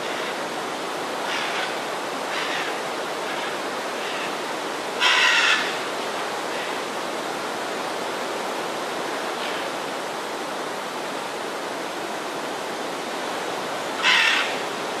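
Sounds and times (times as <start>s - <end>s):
macaw squawking: 5.0s - 5.7s, 14.0s - 14.6s.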